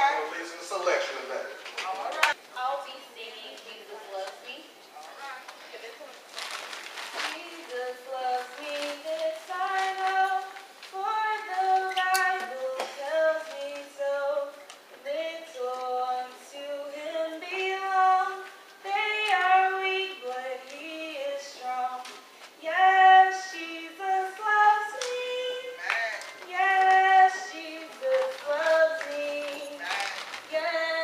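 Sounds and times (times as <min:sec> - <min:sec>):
young woman singing: 0:07.2 - 0:31.0.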